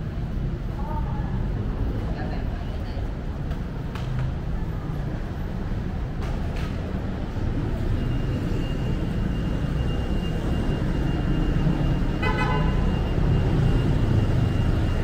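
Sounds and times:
street traffic rumbling: 0.0 - 15.0
vehicle horn toot: 12.2 - 12.9.

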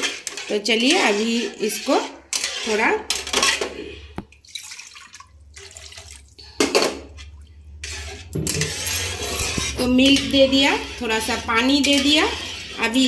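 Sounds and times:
spatula scraping and knocking pan: 0.0 - 4.2, 6.6 - 13.0
liquid sloshing and splashing: 4.2 - 9.9.

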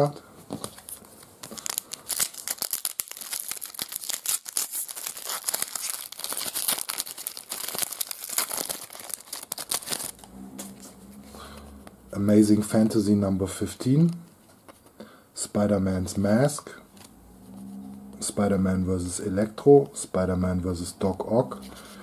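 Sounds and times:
foil wrapper crinkling and tearing: 0.7 - 10.2.

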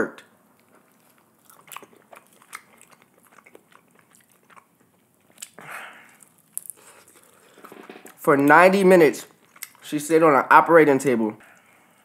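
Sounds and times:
chewing: 0.5 - 7.7, 9.3 - 9.9
loud bite: 0.7 - 8.2.

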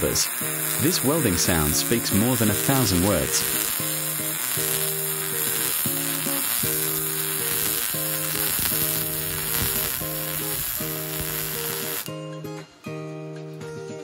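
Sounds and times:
welding arc crackling: 0.0 - 12.2.

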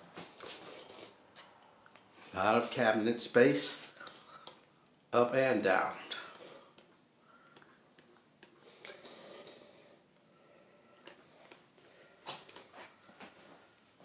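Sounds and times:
faint irregular clicks and taps: 4.0 - 4.7, 6.3 - 9.6, 11.0 - 11.6.

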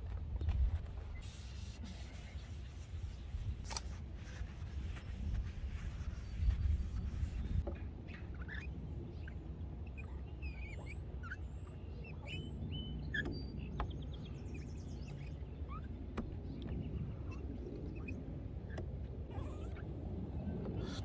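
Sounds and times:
songbirds chirping and whistling: 5.7 - 21.0.

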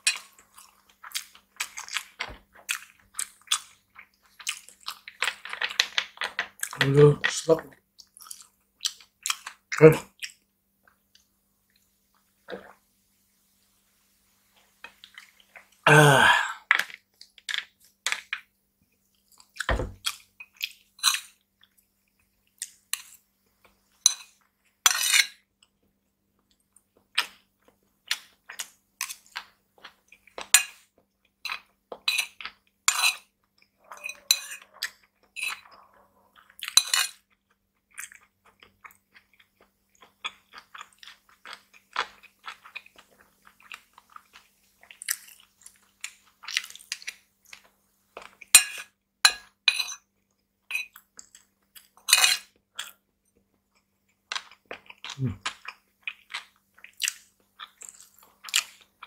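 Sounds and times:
chewing food: 0.0 - 12.8, 14.6 - 15.8, 16.6 - 59.0
spoon scraping ceramic bowl: 32.9 - 34.8, 35.4 - 35.8.

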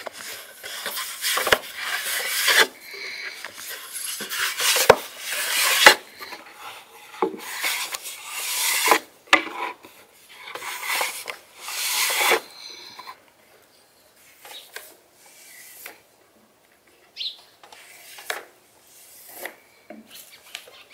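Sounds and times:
rolling pin rubbing on wooden board: 3.6 - 6.0, 10.6 - 12.4.

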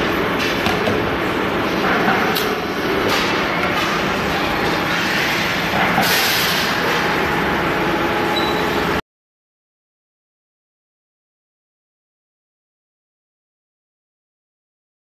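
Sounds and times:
factory machinery noise: 0.0 - 9.0.

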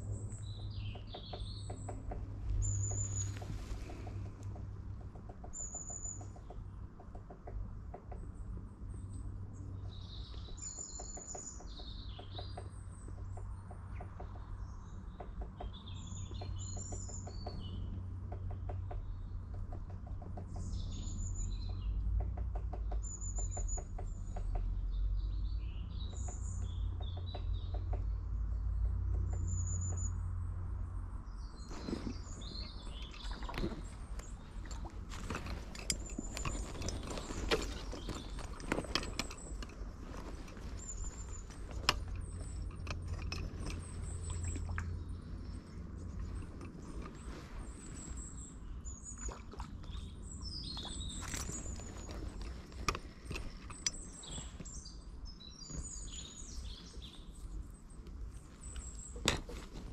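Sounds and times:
small birds chirping: 0.0 - 59.9
sharp clicks and knocks: 21.6 - 24.8, 31.8 - 45.0, 51.1 - 54.7.

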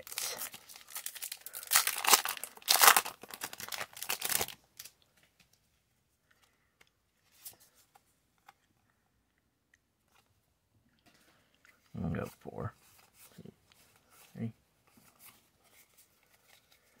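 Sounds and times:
foil wrapper crinkling and tearing: 0.0 - 5.0
cards rustling: 0.0 - 5.5, 12.8 - 17.0.

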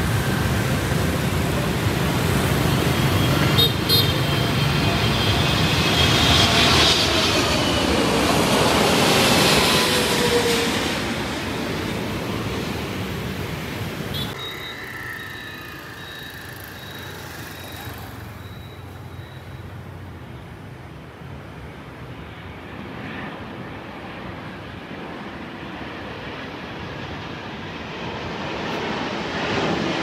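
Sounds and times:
jet airliner passing overhead: 0.0 - 30.0
jet on approach: 0.0 - 30.0
thin high steady tone: 14.2 - 20.0.

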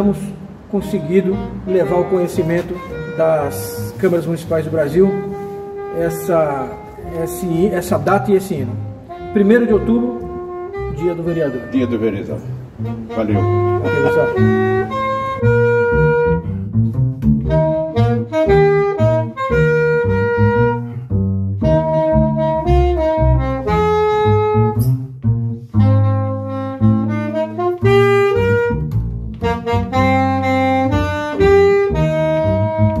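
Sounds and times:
upright double bass: 0.0 - 33.0
melody of short notes: 0.7 - 16.3.

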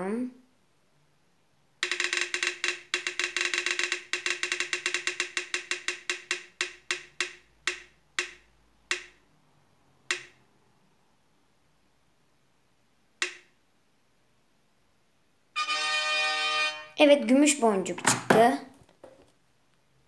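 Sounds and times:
spinning wheel ticking sound effect: 1.8 - 9.2.

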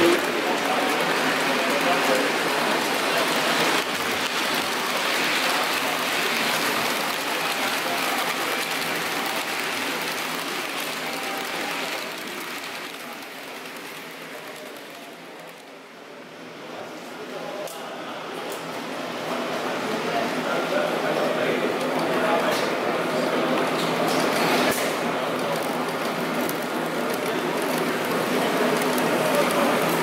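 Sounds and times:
model train wheels rattling on track: 0.0 - 15.8, 23.8 - 30.0.

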